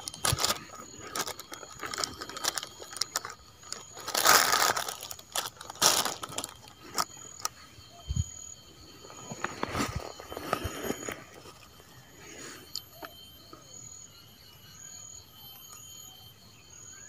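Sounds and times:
plastic bag rustling: 0:00.0 - 0:07.5.

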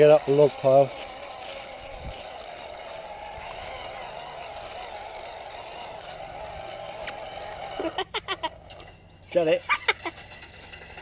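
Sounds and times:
toy car motor whirring: 0:00.0 - 0:09.0.

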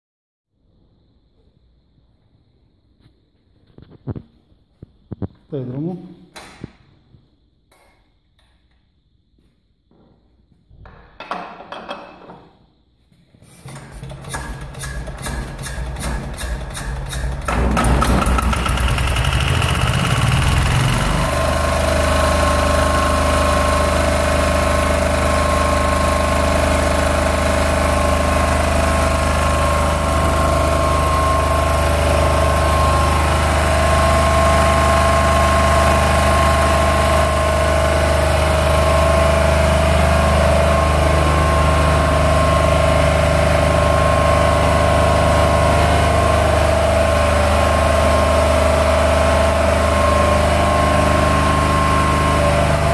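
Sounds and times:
diesel generator running: 0:13.6 - 0:52.9.

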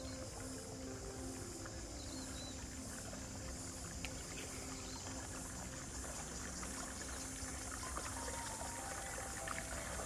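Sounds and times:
paddle blades dipping: 0:00.0 - 0:10.0
water washing along hull: 0:00.0 - 0:10.0.

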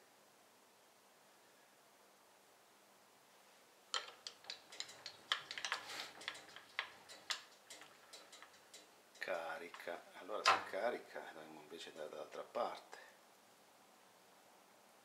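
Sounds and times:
small metallic clicks and taps: 0:03.9 - 0:10.8.

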